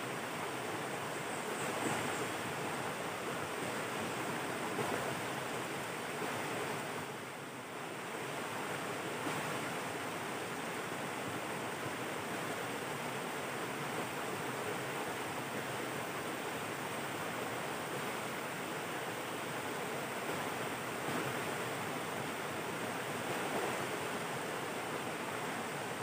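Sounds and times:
river rushing over rocks: 0:00.0 - 0:26.0.

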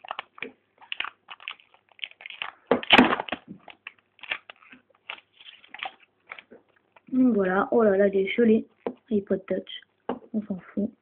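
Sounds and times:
plastic film crinkling and tearing: 0:00.0 - 0:07.2.

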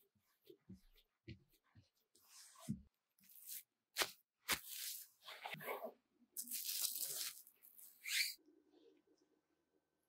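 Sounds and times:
plastic cling film crinkling: 0:06.4 - 0:08.0.

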